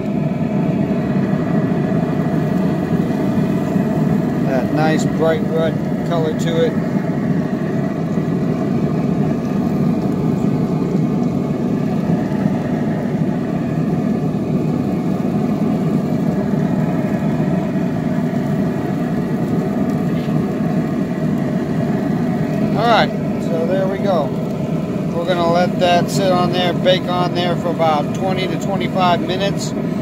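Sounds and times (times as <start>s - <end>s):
mechanical hum: 0.0s - 30.0s.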